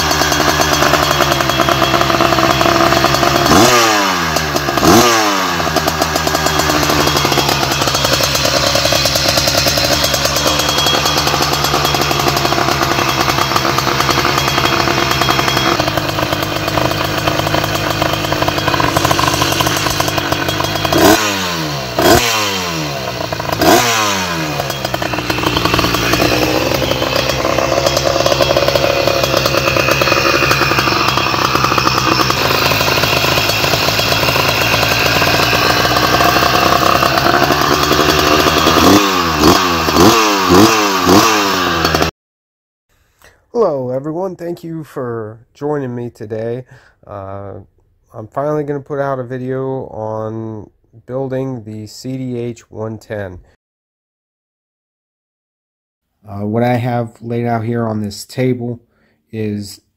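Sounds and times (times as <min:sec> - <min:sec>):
two-stroke engine revving: 0:00.0 - 0:42.1.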